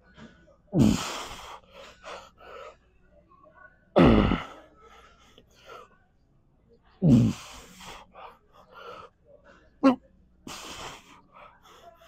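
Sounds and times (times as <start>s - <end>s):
quick breaths: 10.4s - 12.0s.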